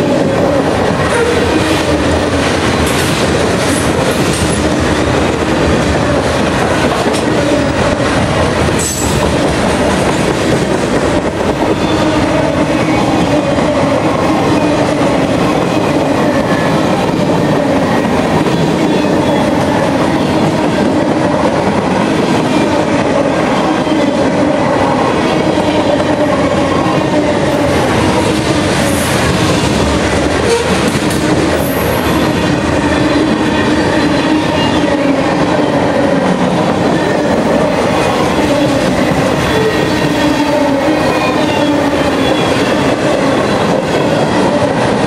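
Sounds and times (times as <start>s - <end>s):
steel wheels clattering on rails: 0.8s - 13.7s.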